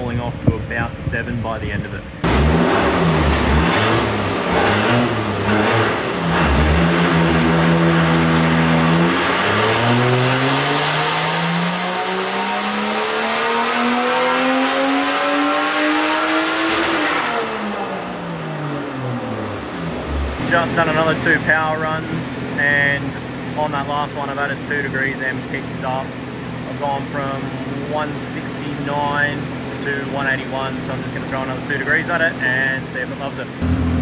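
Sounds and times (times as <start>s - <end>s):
car engine revving on dyno: 2.2s - 34.0s
turbo whine: 33.6s - 34.0s.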